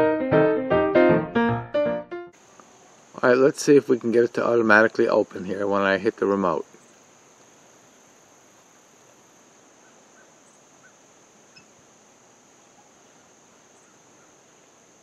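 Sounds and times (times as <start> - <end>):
crickets trilling: 2.4 - 15.0
faint chirps: 9.6 - 14.7.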